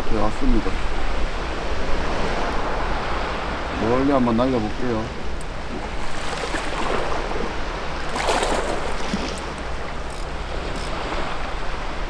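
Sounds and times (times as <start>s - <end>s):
sea water washing against rocks: 5.1s - 12.0s.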